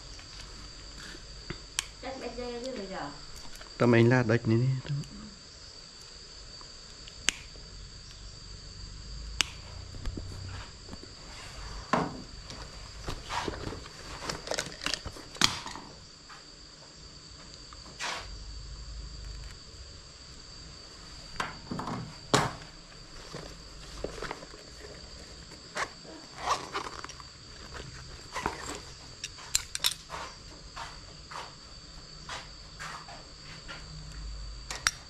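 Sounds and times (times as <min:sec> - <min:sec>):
high insect trill: 0:00.0 - 0:35.0
handling noises: 0:10.0 - 0:16.0, 0:21.3 - 0:31.0.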